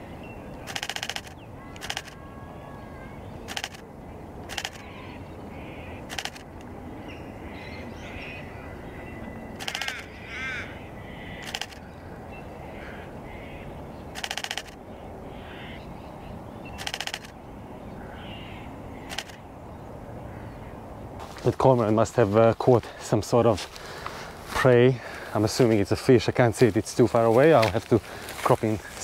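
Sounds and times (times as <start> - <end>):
wild birds calling: 0.0 - 29.0
camera shutter clicks: 0.6 - 2.2, 3.5 - 3.8, 4.4 - 4.9, 6.0 - 6.5, 9.6 - 10.1, 11.4 - 11.8, 14.1 - 14.8, 16.7 - 17.4, 19.1 - 19.4.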